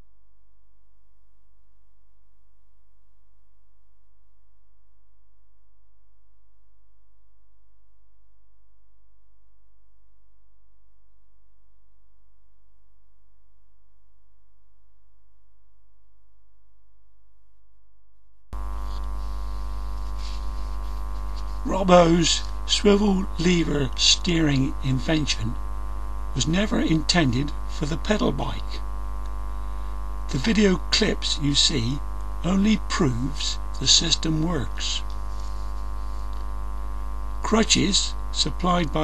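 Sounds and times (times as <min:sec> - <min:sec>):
faint hiss: 0:18.6 - 0:25.6, 0:26.3 - 0:39.0
electrical mains hum: 0:18.6 - 0:39.0.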